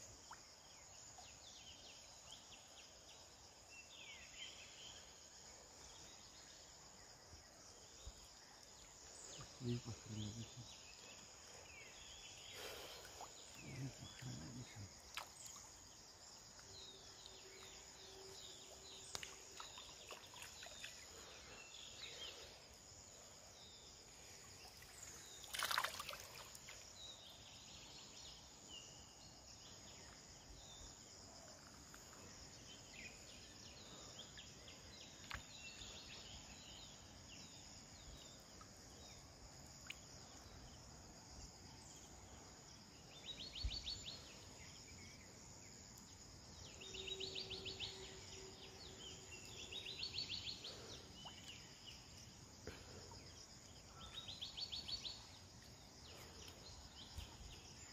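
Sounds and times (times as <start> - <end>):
high insect drone: 0.0 - 57.9
water splash: 25.4 - 26.6.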